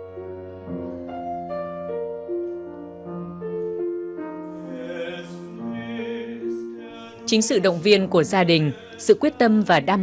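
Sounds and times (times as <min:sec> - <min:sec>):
slow classical piano music: 0:00.0 - 0:08.8.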